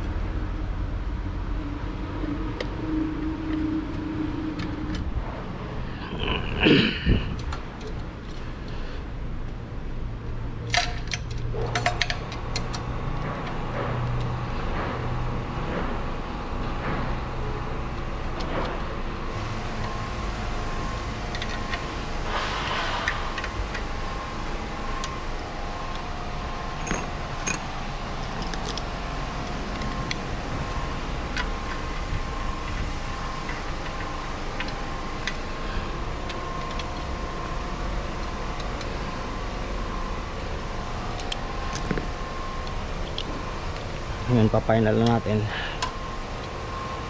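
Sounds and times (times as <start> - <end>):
steady mechanical hum: 0.0 - 47.0
metallic clicks of screws and tools: 10.7 - 12.8.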